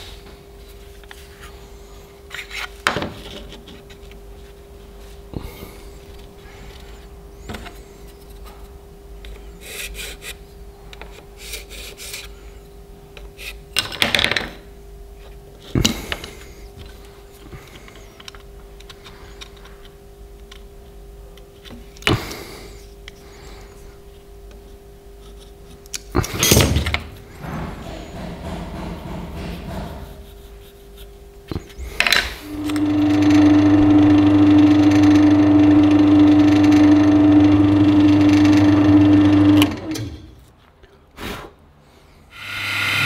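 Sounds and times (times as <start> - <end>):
steady hum: 0.0 - 13.8, 14.5 - 40.6.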